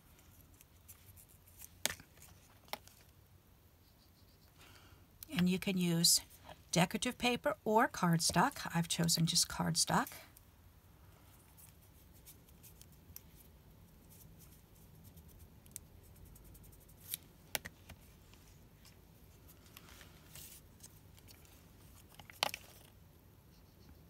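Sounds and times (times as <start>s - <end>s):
paper rustling: 0.2s - 3.1s, 17.0s - 23.0s.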